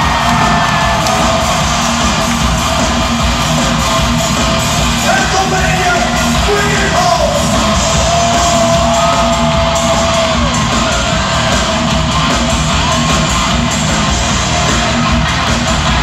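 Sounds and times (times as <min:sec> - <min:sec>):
live hard rock band: 0:00.0 - 0:16.0.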